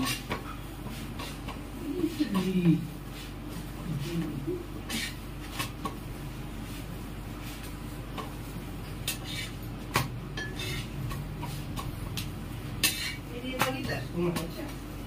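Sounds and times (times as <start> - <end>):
steady low hum: 0.0 - 15.0
dishes and cutlery clinking: 10.3 - 11.5.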